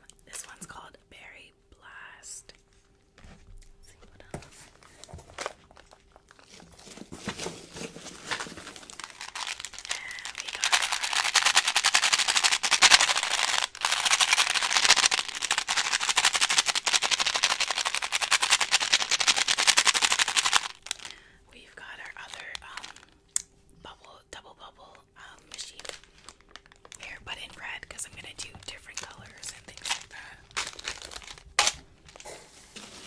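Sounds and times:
candies rattling in plastic container: 5.4s - 21.2s, 22.2s - 23.2s, 25.5s - 33.0s.

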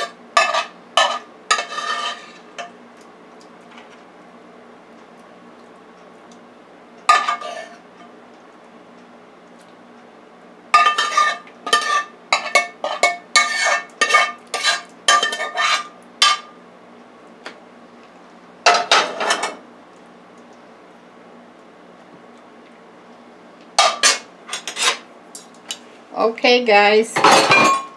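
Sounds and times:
metal utensil scraping frying pan: 0.0s - 2.4s, 7.1s - 7.8s, 10.8s - 15.9s, 24.0s - 25.1s.

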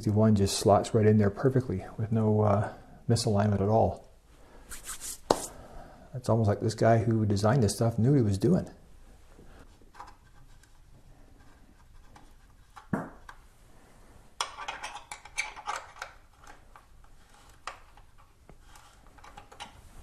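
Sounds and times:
metal parts clicking and scraping: 14.4s - 19.8s.

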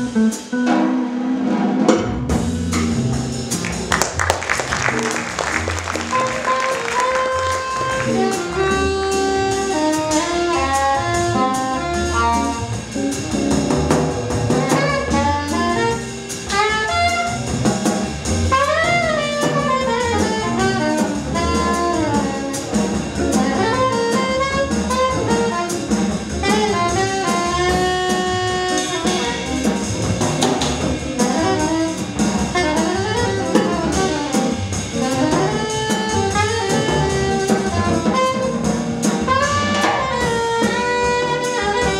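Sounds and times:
upright bass: 0.0s - 0.7s, 1.9s - 41.9s
drum kit: 0.0s - 41.9s
soprano saxophone melody: 4.6s - 12.7s, 14.6s - 17.4s, 18.5s - 22.7s, 23.3s - 29.6s, 31.2s - 41.9s.

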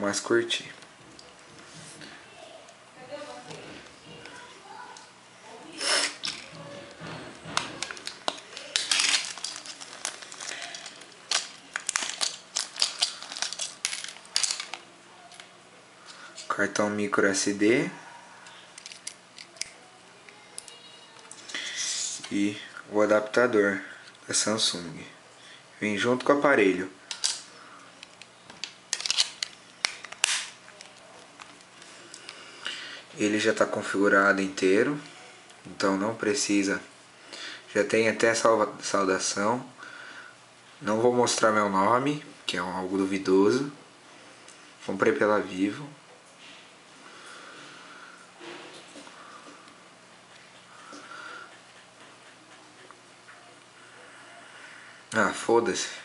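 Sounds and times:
plastic bag crinkling: 5.8s - 15.4s, 28.9s - 32.0s
plastic phone parts clicking: 18.8s - 19.7s, 28.0s - 31.6s.

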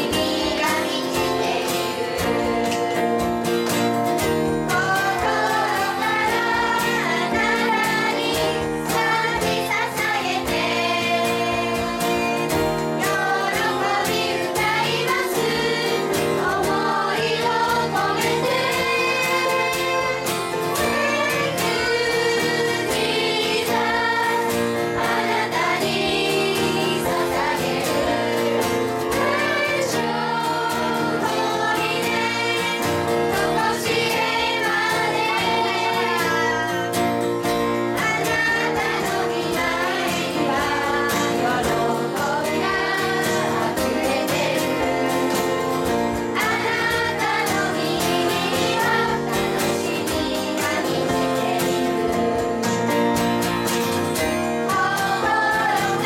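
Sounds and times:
children singing: 0.0s - 37.0s, 37.8s - 53.4s, 54.0s - 56.0s
woman singing: 46.4s - 52.8s.

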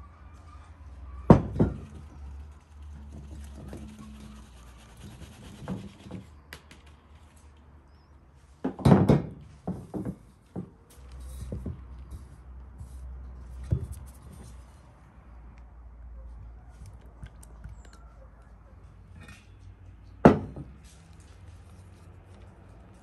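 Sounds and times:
sieve rubbing and scratching: 1.7s - 7.4s.

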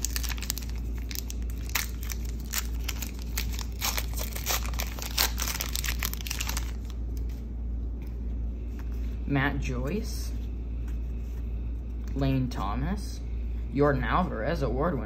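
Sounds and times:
wrapper tearing and crinkling: 0.0s - 7.0s.

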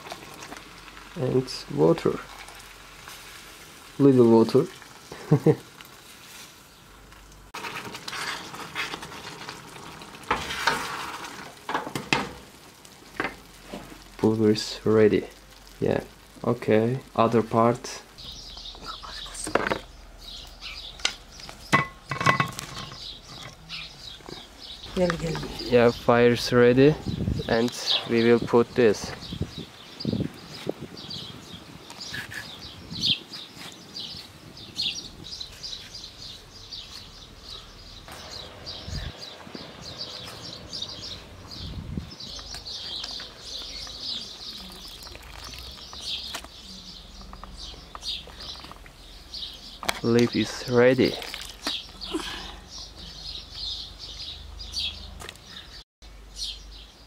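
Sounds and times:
firewood knocking and clattering: 10.2s - 14.4s, 19.4s - 19.9s, 21.0s - 23.6s
small birds chirping: 13.2s - 57.0s.

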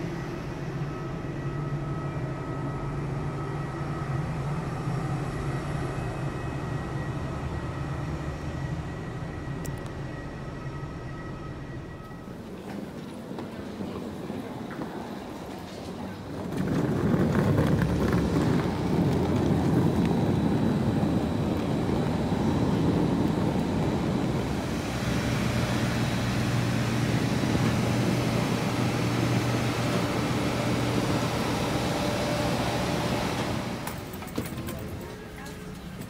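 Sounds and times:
steady machine hum with whine: 17.4s - 34.1s.

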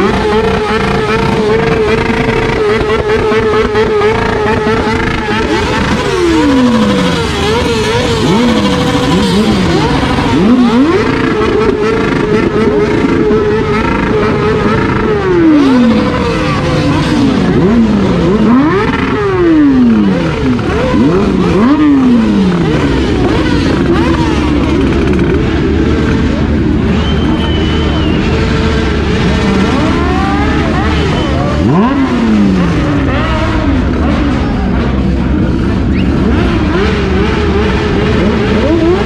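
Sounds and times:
motorcycle engine revving: 0.0s - 39.0s
other motorcycles revving: 0.0s - 39.0s.

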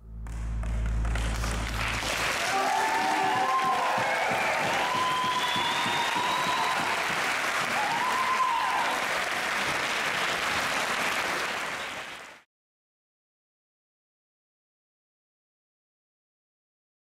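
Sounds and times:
audience applauding: 0.2s - 12.5s.

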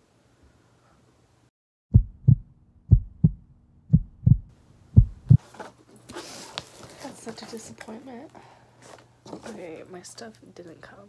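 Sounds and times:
heartbeat thumps: 1.9s - 5.4s.

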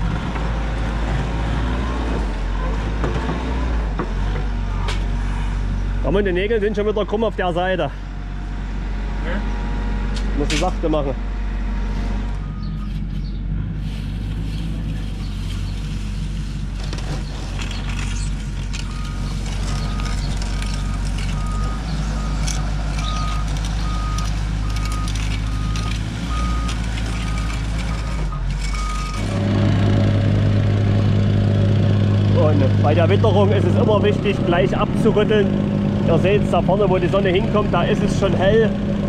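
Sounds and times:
construction machine engine running: 0.0s - 39.0s
reversing alarm beeping: 12.4s - 12.9s, 18.8s - 29.3s.

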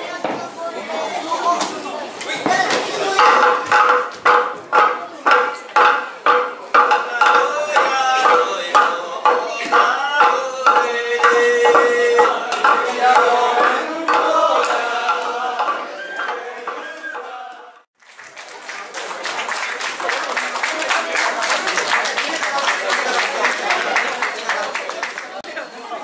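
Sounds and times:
voices singing: 1.5s - 17.9s
wooden pestles pounding rice: 2.5s - 17.4s.

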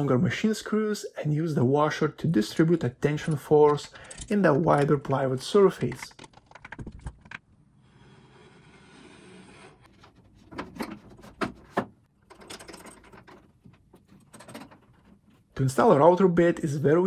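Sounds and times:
wooden knocks and clunks: 9.9s - 15.2s.

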